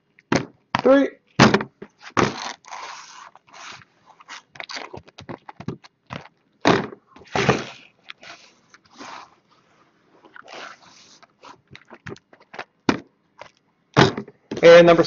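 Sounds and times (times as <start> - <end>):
boxes knocking on table: 0.3 - 2.4, 12.9 - 13.1, 14.0 - 14.6
cardboard boxes scraping on wooden table: 2.0 - 4.5, 7.2 - 9.5.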